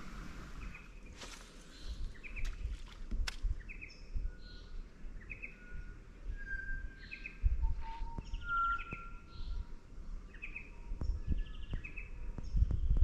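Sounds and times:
birds calling: 0:00.0 - 0:05.9.

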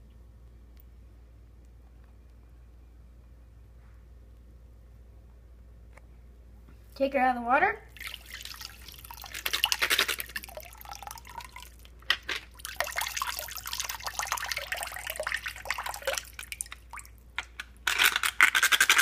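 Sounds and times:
water splashing in a sink: 0:07.9 - 0:17.5.

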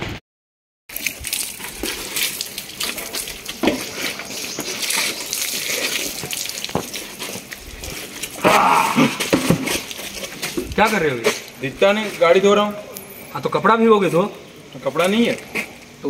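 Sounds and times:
water splashing on metal: 0:00.9 - 0:12.6.

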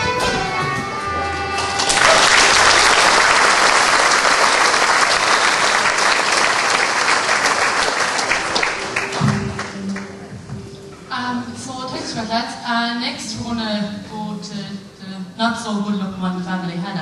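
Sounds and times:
traditional tune last notes: 0:00.0 - 0:02.8, 0:07.4 - 0:11.6
audience clapping: 0:01.6 - 0:10.3.

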